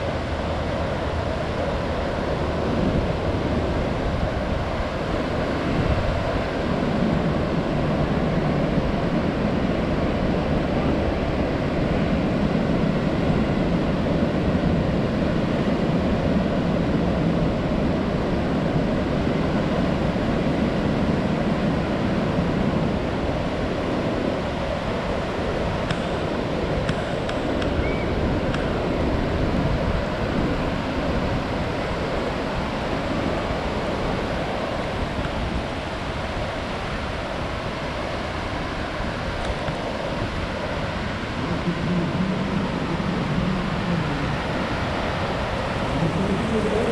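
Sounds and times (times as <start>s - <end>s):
ocean waves washing up beach: 0.0s - 46.9s.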